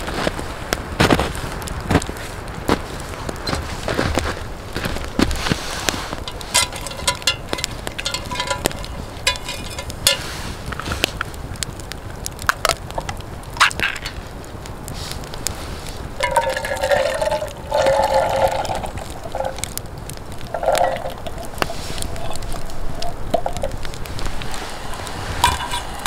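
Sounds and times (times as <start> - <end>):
campfire crackling and popping: 0.0 - 26.0
metal pot set down: 6.2 - 10.3, 16.2 - 19.7, 20.5 - 22.6, 24.9 - 26.0.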